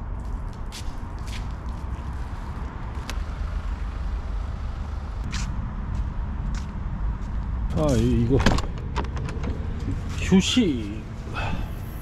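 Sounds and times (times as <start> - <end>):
van engine running: 2.0 - 12.0.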